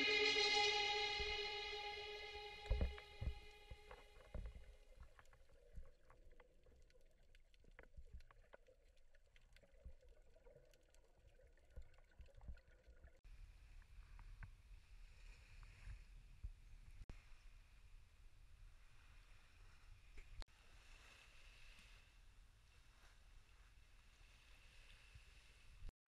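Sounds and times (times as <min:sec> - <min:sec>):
underwater crackling clicks: 0:04.0 - 0:12.8.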